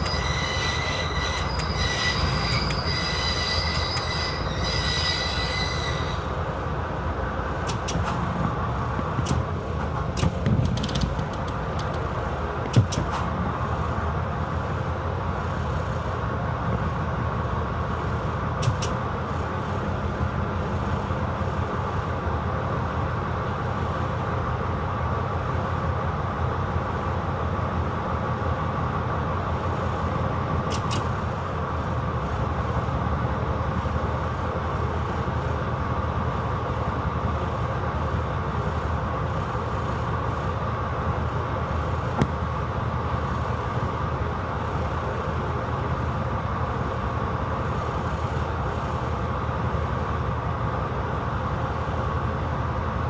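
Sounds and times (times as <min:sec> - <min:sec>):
brief high squeal: 0:00.0 - 0:06.4
diesel locomotive engine running: 0:00.0 - 0:53.0.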